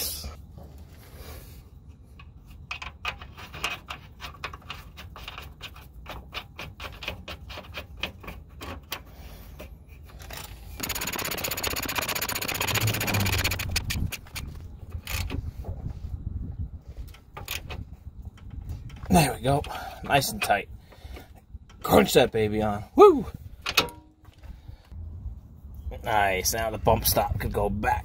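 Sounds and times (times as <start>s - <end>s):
metallic clicks of nut spinning: 10.2s - 15.4s
ratchet wrench clicking: 10.8s - 15.3s.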